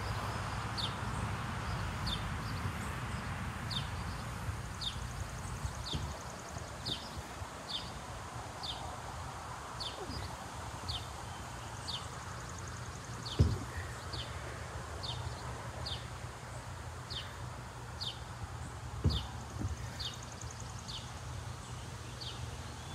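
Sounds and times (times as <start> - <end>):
bird chirping: 1.6 - 8.9, 9.8 - 22.9
thump: 5.9 - 6.2, 13.3 - 13.8, 19.0 - 20.0.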